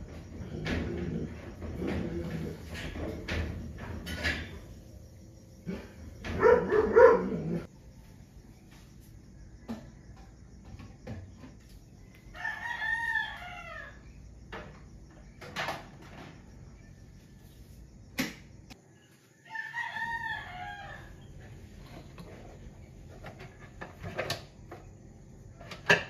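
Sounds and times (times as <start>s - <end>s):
rooster crowing: 12.2s - 14.2s, 19.3s - 21.4s.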